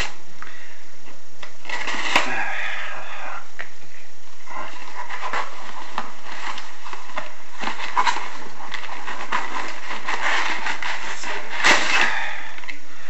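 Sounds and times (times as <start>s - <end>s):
packaging crackling and rustling: 4.6s - 12.8s.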